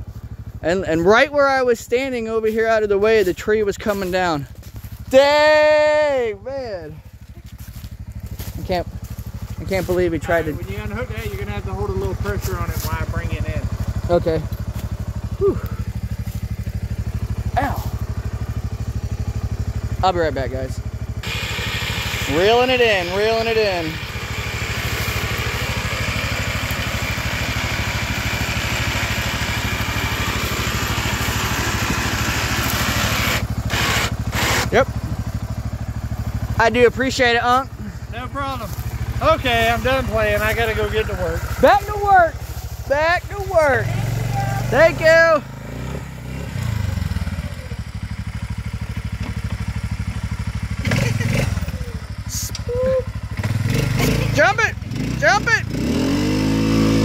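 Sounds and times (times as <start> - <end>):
atv engine idling: 0.0 - 57.0
electric winch reeling cable: 21.2 - 35.1.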